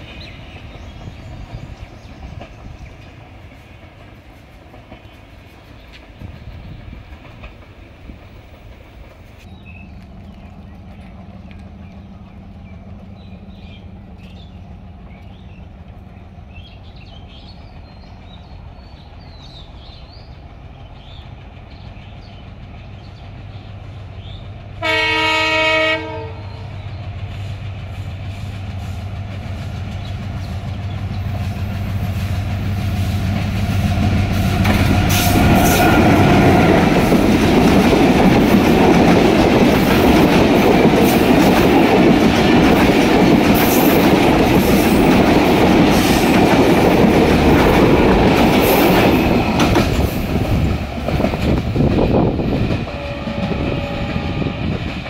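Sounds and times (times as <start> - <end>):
train rumbling past: 0.0 - 55.0
locomotive horn blast: 24.8 - 26.7, 52.9 - 54.8.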